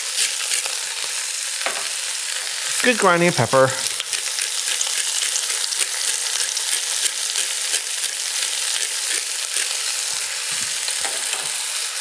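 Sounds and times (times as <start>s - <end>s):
pepper mill twisting: 0.0s - 1.1s, 3.8s - 11.6s
vegetables sizzling in a hot pot: 0.0s - 12.0s.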